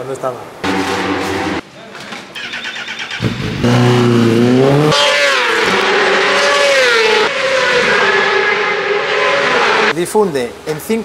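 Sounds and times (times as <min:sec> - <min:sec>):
motorcycle engine revving: 0:00.6 - 0:01.6, 0:02.4 - 0:09.9.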